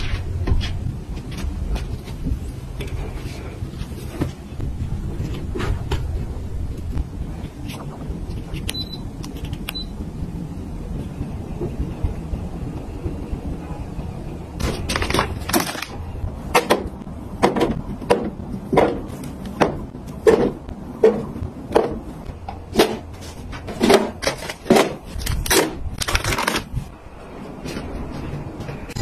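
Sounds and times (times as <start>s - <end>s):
plastic bottles knocking and clattering: 14.6s - 26.7s.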